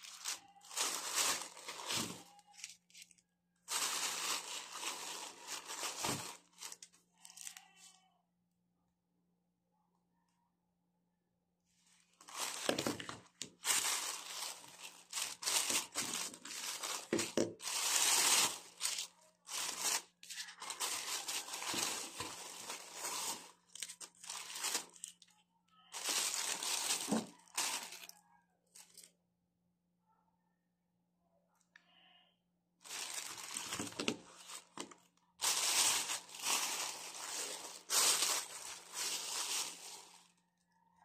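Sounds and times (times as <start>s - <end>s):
plastic bags crinkling: 0.0s - 7.6s, 12.0s - 25.3s, 25.9s - 28.1s, 32.8s - 40.4s.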